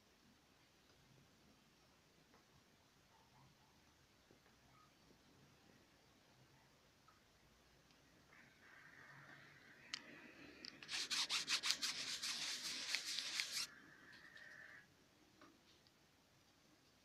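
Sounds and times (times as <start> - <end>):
rubbing and scraping strokes: 10.8 - 13.7.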